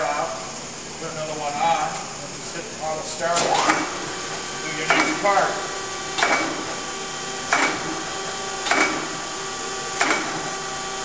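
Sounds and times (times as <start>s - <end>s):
surface grinder humming and whining: 2.3s - 11.0s
grinder table clunk and hiss: 2.8s - 6.9s, 7.5s - 9.3s, 10.0s - 10.6s.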